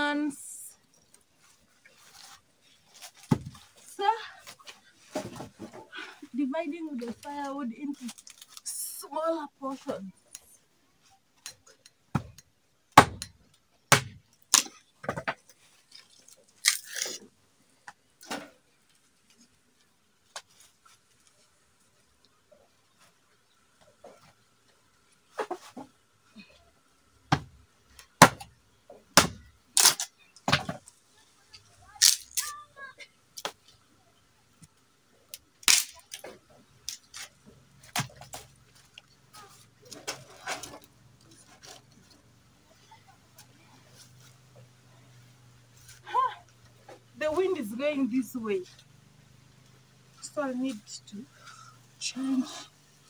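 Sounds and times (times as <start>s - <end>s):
firewood sticks cracking: 13.0s - 17.3s, 29.2s - 31.0s, 32.0s - 32.6s, 35.3s - 42.1s
sticks snapping: 16.6s - 17.2s, 32.0s - 32.5s, 35.6s - 36.2s.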